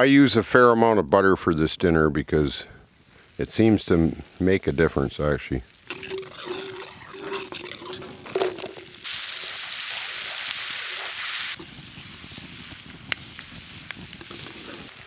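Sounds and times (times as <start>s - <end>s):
onion sizzling in a frying pan: 2.9s - 15.0s.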